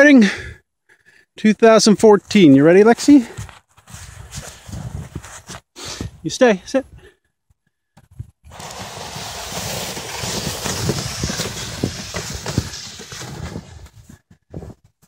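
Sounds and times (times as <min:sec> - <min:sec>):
footsteps crunching through snow: 0:02.9 - 0:05.7, 0:08.5 - 0:14.8
sled hissing over snow: 0:08.5 - 0:14.0.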